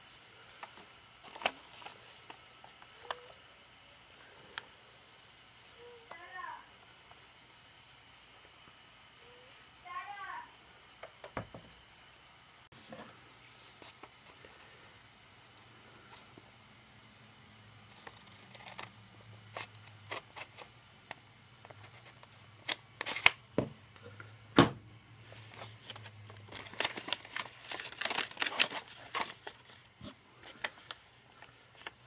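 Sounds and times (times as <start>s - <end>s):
paper crinkling: 0.1s - 3.4s, 17.9s - 18.9s, 25.2s - 32.0s
scissors cutting paper: 17.9s - 18.9s.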